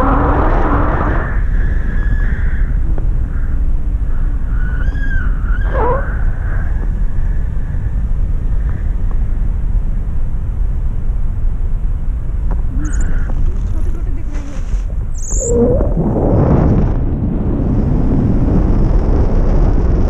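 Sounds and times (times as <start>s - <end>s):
wind buffeting microphone: 0.0s - 20.0s
wavering high tone: 15.1s - 16.0s.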